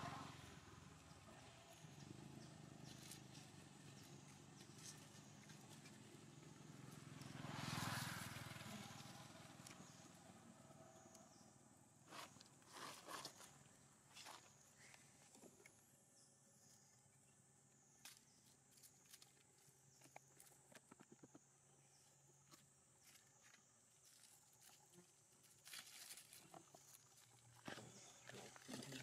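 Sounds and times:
rustling in dry leaf litter: 24.0s - 29.0s.

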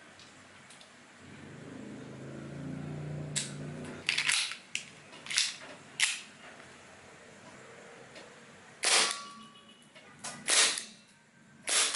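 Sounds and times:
airsoft pistol shots: 8.8s - 9.3s, 10.4s - 10.9s, 11.7s - 11.9s.

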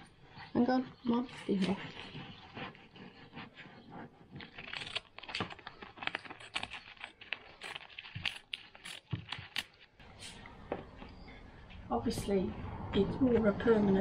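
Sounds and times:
sheet crinkling: 4.2s - 10.4s.

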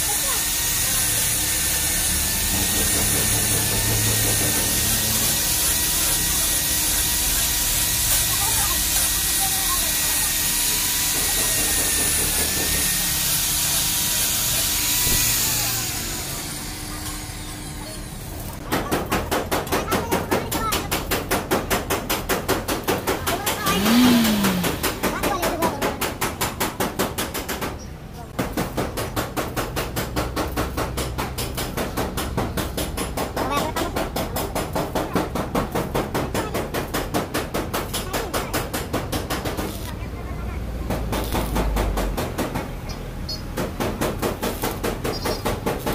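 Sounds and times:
grinding metal: 0.0s - 18.6s, 23.2s - 25.8s
angle grinder whine: 23.6s - 24.9s
grinder disc spinning down: 23.6s - 25.0s.

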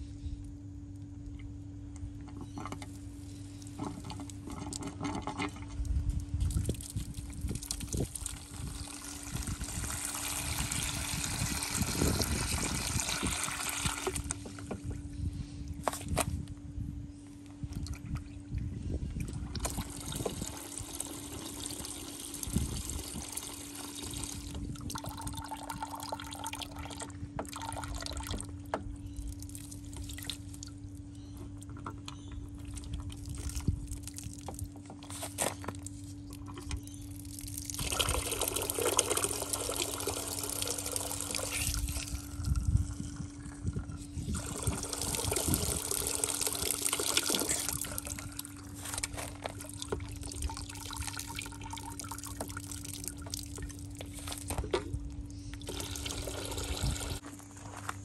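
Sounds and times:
water spilling onto gravel: 6.4s - 14.6s, 29.3s - 30.8s, 37.1s - 54.6s
water pouring into plastic bucket: 6.5s - 14.8s, 19.4s - 28.5s, 37.2s - 54.7s, 55.6s - 57.2s.

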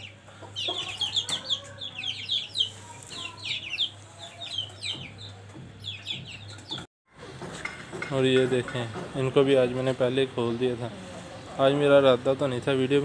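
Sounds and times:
chicks peeping: 0.0s - 6.9s.

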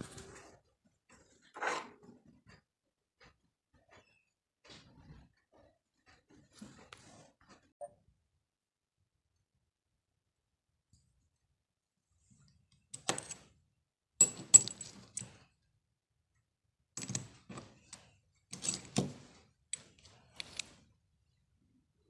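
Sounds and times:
metal lock pieces clinking: 13.0s - 13.5s, 14.2s - 15.4s, 17.0s - 19.2s, 19.8s - 20.8s.

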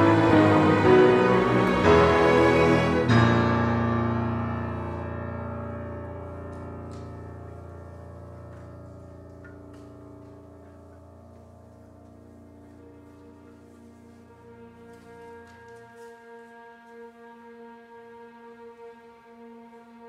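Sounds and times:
deep piano chord ringing: 0.0s - 14.8s
dense ensemble music: 0.0s - 20.0s.

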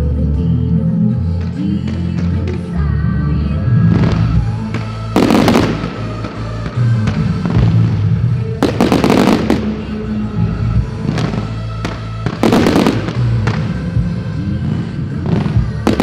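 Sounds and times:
music playing: 0.0s - 16.0s
fireworks bangs and crackles: 3.8s - 16.0s.

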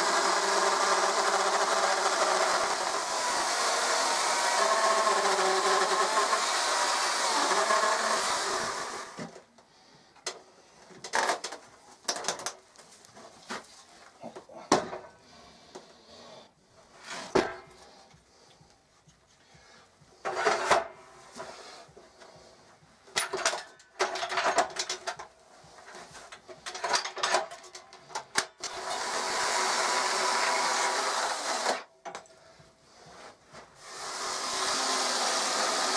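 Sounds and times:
electric chainsaw cutting wood: 0.0s - 9.5s, 28.2s - 31.9s, 33.8s - 35.9s
wood block knocking and clattering: 11.0s - 12.6s
scrape: 15.2s - 22.8s, 32.4s - 33.7s.

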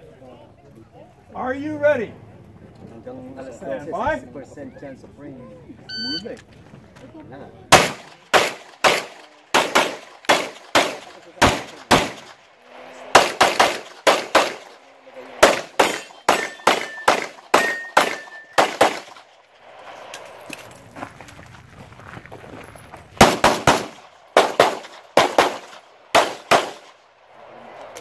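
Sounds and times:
pistol shots: 7.7s - 12.4s, 13.1s - 14.8s, 15.4s - 19.2s, 23.2s - 27.0s.

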